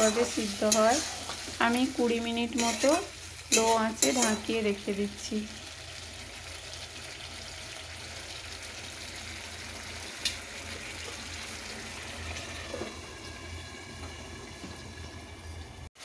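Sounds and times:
curry bubbling in a pan: 4.3 - 15.4.

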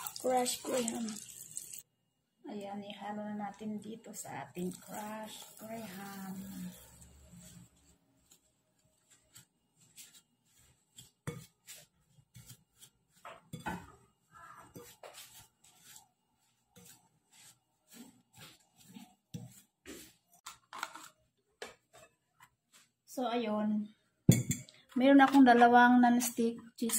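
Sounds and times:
wooden spoon scraping bowl: 4.6 - 21.1.

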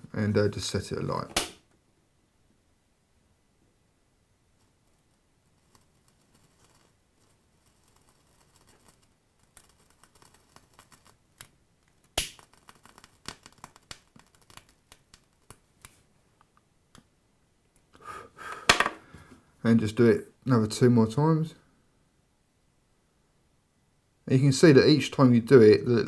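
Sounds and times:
faint crackling of burning wick: 4.5 - 17.0.

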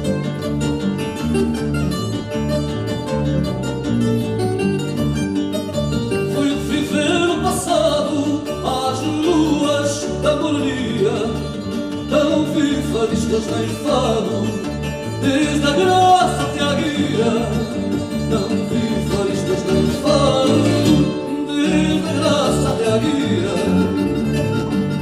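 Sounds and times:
bass line: 0.0 - 25.0
plucked guitars playing: 0.0 - 25.0
man singing: 6.2 - 24.7.

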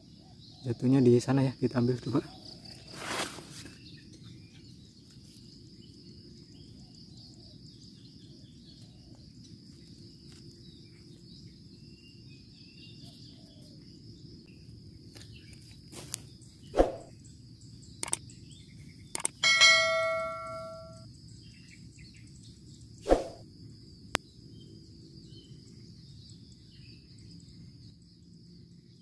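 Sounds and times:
faint bird chirps: 0.0 - 3.0, 18.0 - 23.4
insects droning: 0.0 - 29.0.

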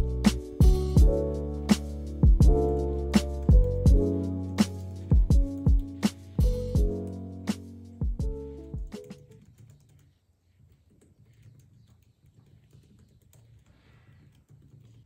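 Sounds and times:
background music: 0.0 - 9.3
typing on laptop keyboard: 8.3 - 15.0.

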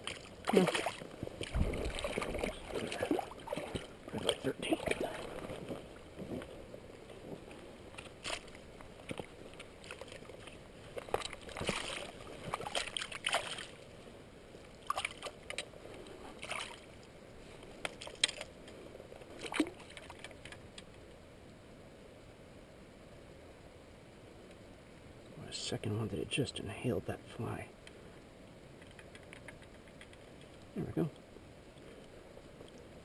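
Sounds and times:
fish thrashing in water: 0.0 - 6.0, 8.0 - 13.8.

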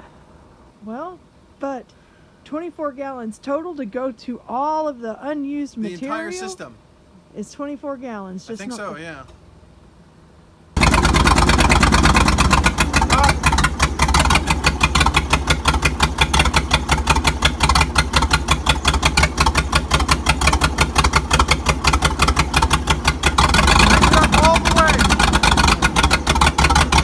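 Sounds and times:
backhoe engine chugging: 10.8 - 27.0.

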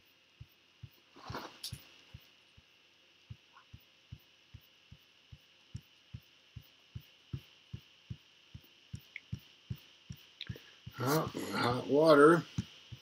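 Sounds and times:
faint high-pitched hum: 0.0 - 13.0
soft low thumps: 3.3 - 11.1.

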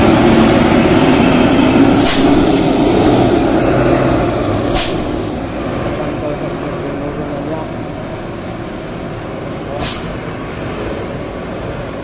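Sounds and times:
heavy truck passing: 0.0 - 12.0
air brake hisses: 4.7 - 5.3, 9.8 - 10.2.

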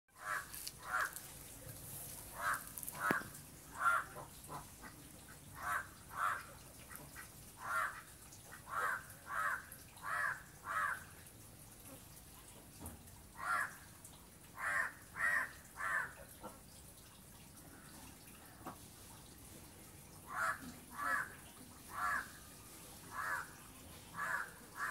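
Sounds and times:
crow cawing: 0.2 - 1.2, 2.4 - 4.1, 7.6 - 7.9, 8.7 - 11.0, 13.4 - 13.8, 14.6 - 16.2, 20.3 - 21.3, 21.9 - 22.3, 23.2 - 23.5, 24.2 - 24.9.

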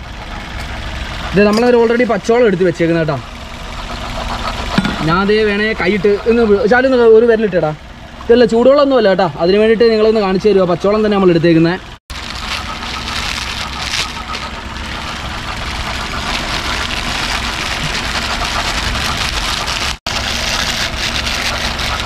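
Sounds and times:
low rumble: 12.1 - 20.0
plastic wrapper crinkling: 12.1 - 22.0.

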